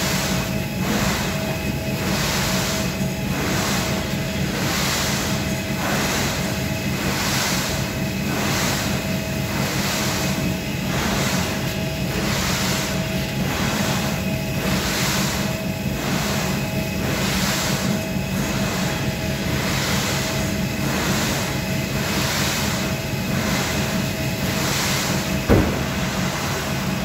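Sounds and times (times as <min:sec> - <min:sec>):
treadmill motor rumble: 0:00.0 - 0:27.0
sharp knock: 0:25.5 - 0:26.1.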